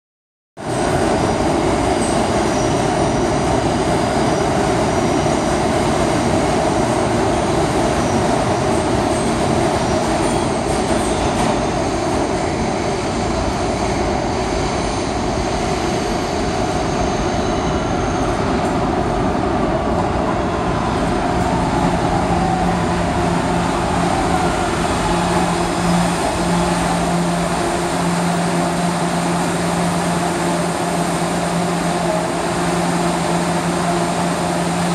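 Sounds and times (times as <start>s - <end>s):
train rail and wheel noise: 0.6s - 34.9s
falling whine of braking train: 7.0s - 34.9s.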